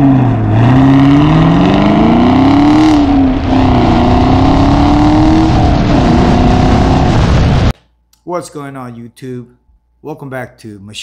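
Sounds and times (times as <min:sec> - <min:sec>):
car engine revving: 0:00.0 - 0:07.7.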